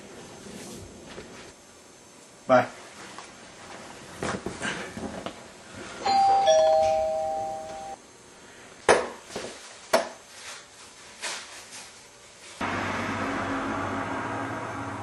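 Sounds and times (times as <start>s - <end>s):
two-note doorbell chime: 6.0s - 8.0s.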